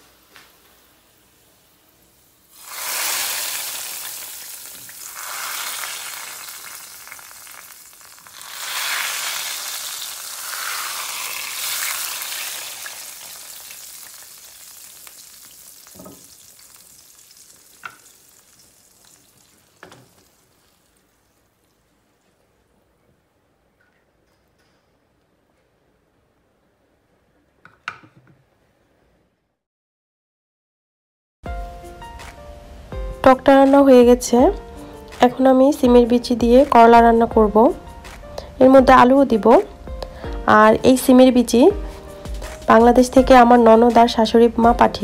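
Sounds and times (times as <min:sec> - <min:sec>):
hot oil sizzling: 0:00.0 - 0:21.9.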